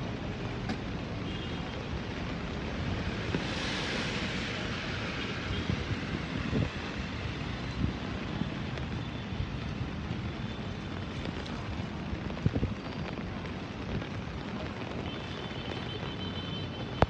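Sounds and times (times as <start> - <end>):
fast-flowing floodwater: 4.0 - 17.0
wind buffeting microphone: 5.4 - 8.2, 11.2 - 14.8.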